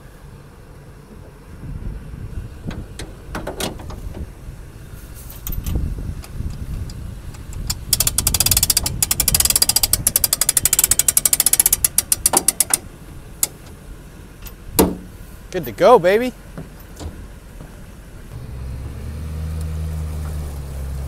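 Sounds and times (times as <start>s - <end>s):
low rumble: 0.0s - 10.2s
winch ratchet clicking: 6.4s - 13.6s.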